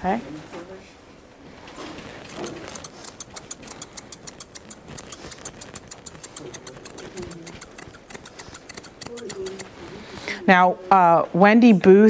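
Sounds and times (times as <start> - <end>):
grooming scissors snipping: 2.3 - 9.8.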